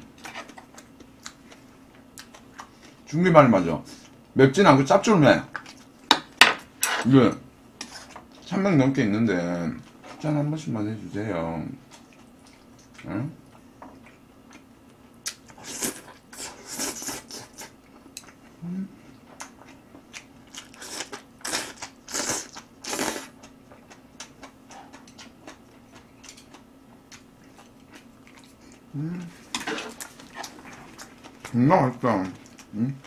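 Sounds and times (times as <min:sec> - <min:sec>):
chewing mouth noises: 0:19.3 - 0:31.6.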